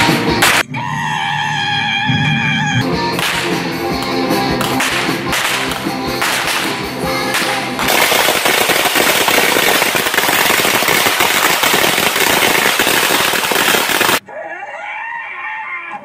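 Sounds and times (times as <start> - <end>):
firecrackers crackling: 0.4 - 0.7, 3.1 - 14.2.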